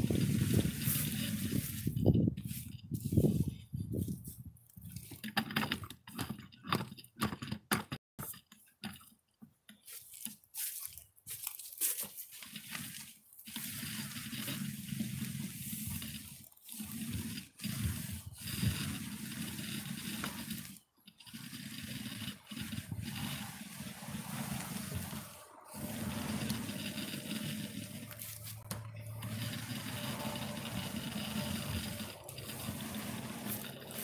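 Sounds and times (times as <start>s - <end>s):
paint roller wet rubbing: 0.0s - 5.2s, 12.1s - 34.0s
paint roller wet squishing: 11.9s - 34.0s.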